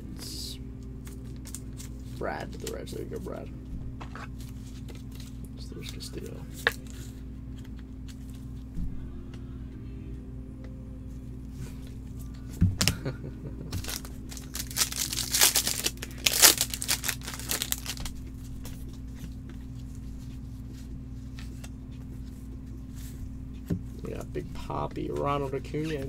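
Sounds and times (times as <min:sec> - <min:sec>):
steady low hum: 0:00.0 - 0:26.0
cards and plastic holders handled: 0:04.0 - 0:08.7, 0:13.8 - 0:22.4, 0:25.1 - 0:26.0
crinkling and rustling: 0:13.8 - 0:22.4.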